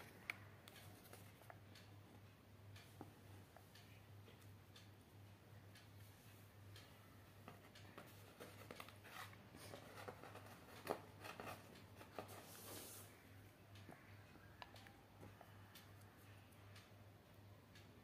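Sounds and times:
small clicks and rustles: 0:07.4 - 0:15.9.

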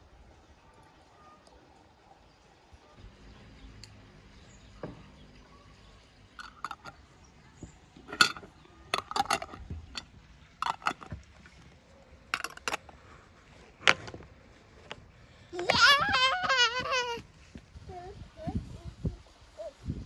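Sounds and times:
glass jars and metal lids clinking: 0:06.4 - 0:07.0, 0:08.0 - 0:11.2, 0:12.4 - 0:13.0.

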